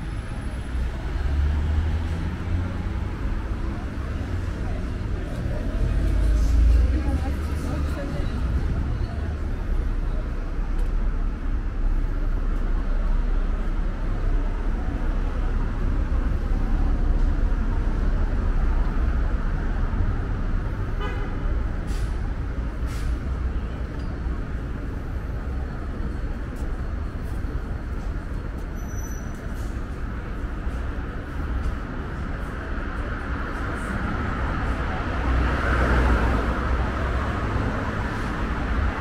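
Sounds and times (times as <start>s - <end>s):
road traffic rumble: 0.0s - 39.0s.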